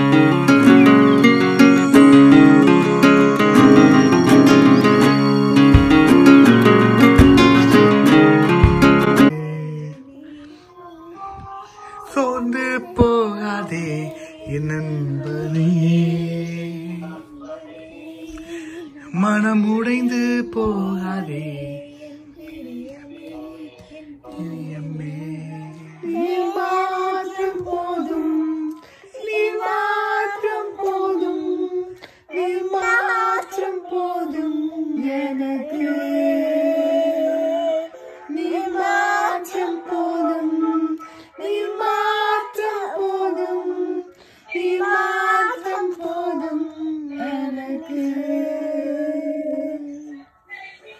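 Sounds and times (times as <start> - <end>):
child singing into toy microphone: 9.9 - 50.9.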